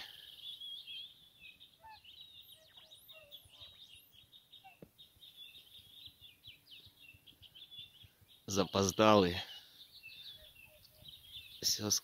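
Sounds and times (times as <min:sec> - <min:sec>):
lower bird calls: 0:00.0 - 0:12.0
small birds twittering: 0:00.0 - 0:12.0.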